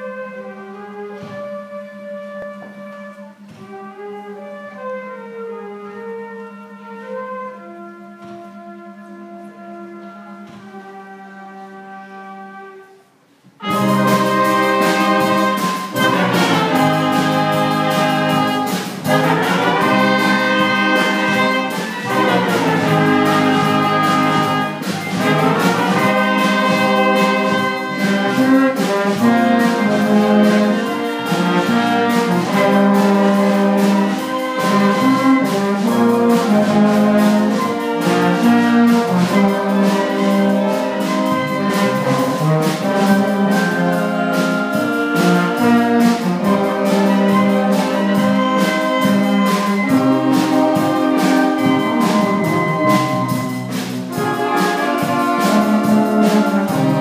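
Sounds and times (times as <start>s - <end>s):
concert band playing: 13.6s - 57.0s.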